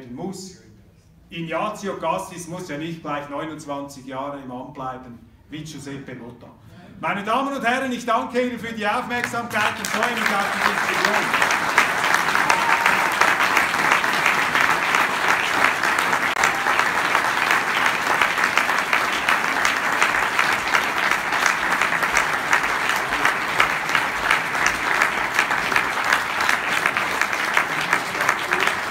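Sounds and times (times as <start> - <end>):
crowd applauding: 9.2 - 28.9.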